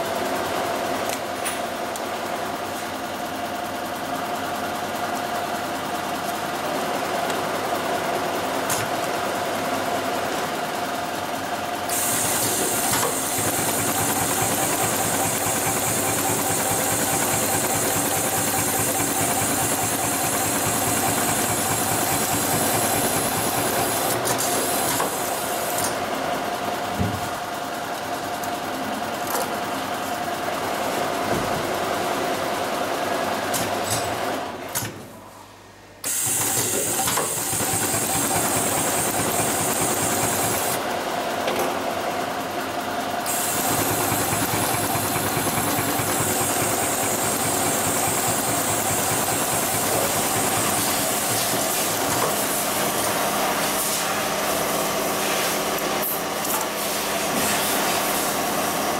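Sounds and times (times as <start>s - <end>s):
sewing machine clattering: 11.9s - 25.3s, 36.3s - 40.8s, 43.3s - 52.4s.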